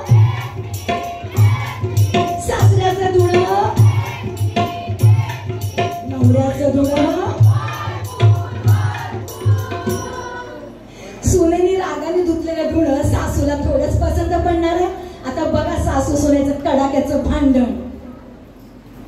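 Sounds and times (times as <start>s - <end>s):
steady drum beat: 0.0s - 10.5s.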